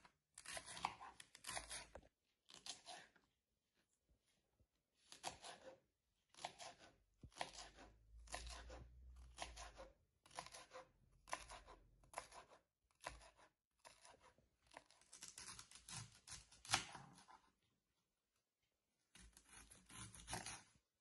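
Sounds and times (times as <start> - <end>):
knife slicing celery on wooden board: 0.4 - 3.2, 5.0 - 17.4, 19.2 - 20.7.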